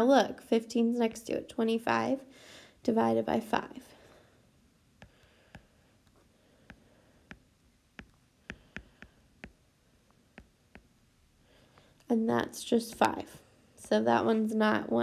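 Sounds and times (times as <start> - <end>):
stylus tapping on glass screen: 6.6 - 9.6, 10.3 - 11.0.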